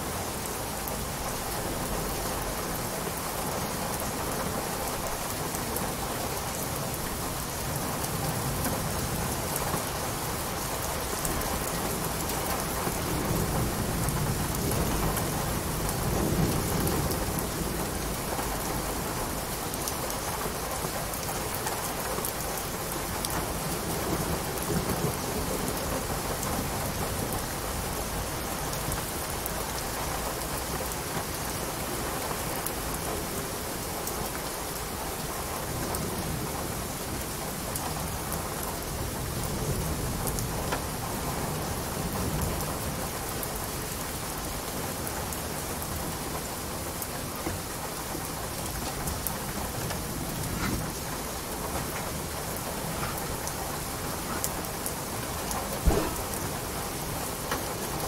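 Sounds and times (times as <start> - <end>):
heavy rain: 0.0 - 58.0
distant thunder rumble: 55.6 - 57.3.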